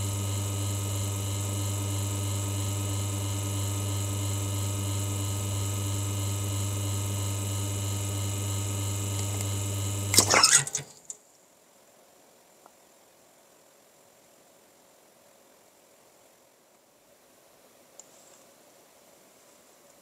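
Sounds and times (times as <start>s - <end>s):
espresso machine pump humming: 0.0s - 10.8s.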